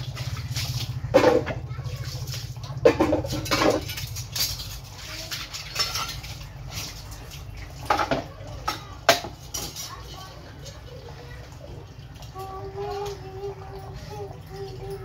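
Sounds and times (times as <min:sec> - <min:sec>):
metal utensils clinking: 0:00.0 - 0:15.0.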